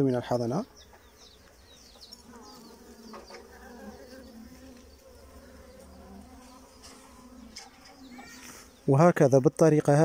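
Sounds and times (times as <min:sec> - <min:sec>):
honeybees buzzing: 0:00.0 - 0:10.0.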